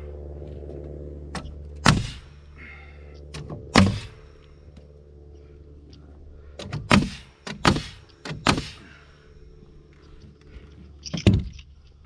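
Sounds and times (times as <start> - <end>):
nail gun bangs with hiss: 1.8 - 2.2, 3.7 - 4.1, 6.6 - 8.8.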